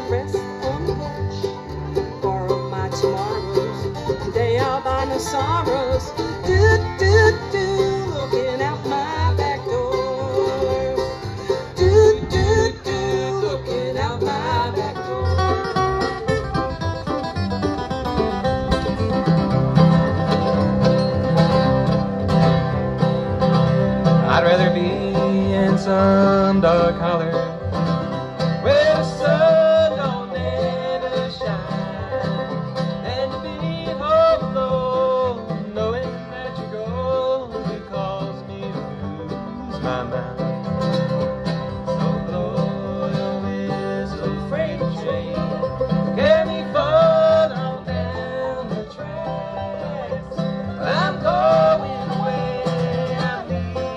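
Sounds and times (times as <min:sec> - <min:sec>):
acoustic guitar: 0:00.0 - 0:53.9
banjo: 0:00.0 - 0:53.9
mandolin: 0:00.0 - 0:53.9
upright bass: 0:00.0 - 0:53.9.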